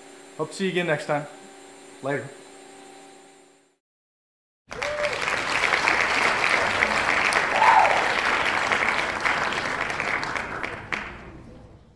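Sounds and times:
audience applause: 0:04.7 - 0:11.4.

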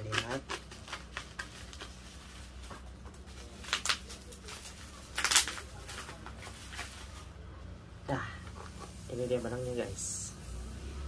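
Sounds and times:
plastic wrapping rustling and tearing: 0:00.0 - 0:07.3.

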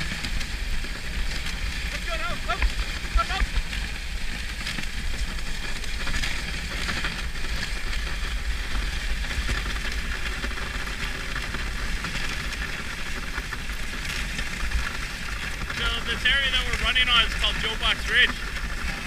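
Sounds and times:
sled runners hissing over snow: 0:00.0 - 0:19.0.

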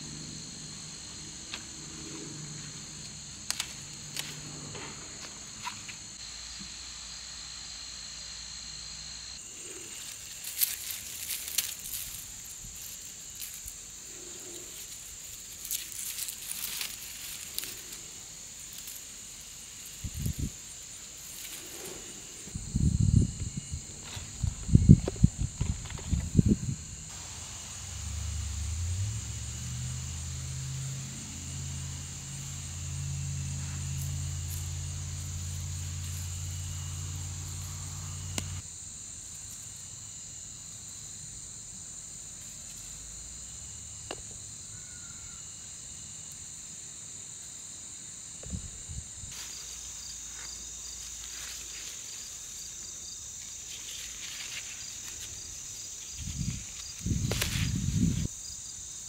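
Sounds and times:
low droning hum: 0:00.0 - 0:06.2, 0:22.3 - 0:38.6
high-pitched insect chorus: 0:00.0 - 0:59.0.

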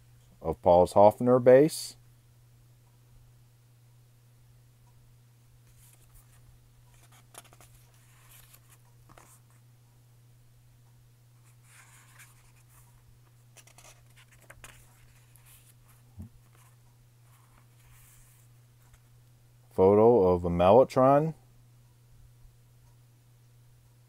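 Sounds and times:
steady low hum: 0:00.0 - 0:24.0
paper pages rustling: 0:05.7 - 0:09.6, 0:11.4 - 0:19.1.

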